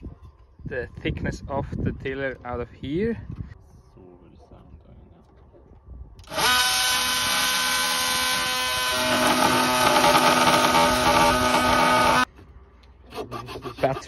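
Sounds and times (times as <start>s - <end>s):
cordless power tool whining: 6.2s - 12.3s.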